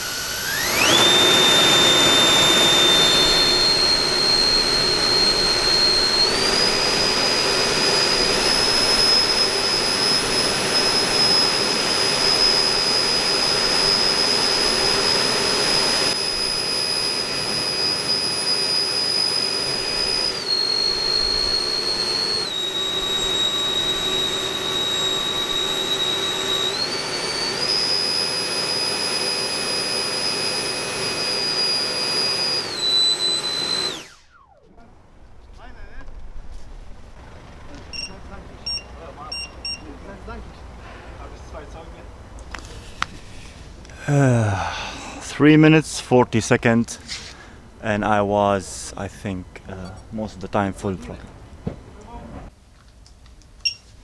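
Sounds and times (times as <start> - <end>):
electric ducted fans whining: 0.0 - 54.0.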